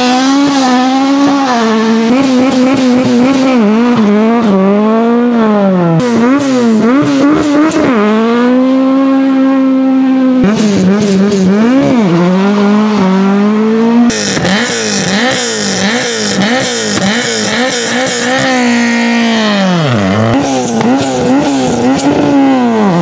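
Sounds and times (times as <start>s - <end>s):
rally car engines revving: 0.0s - 23.0s.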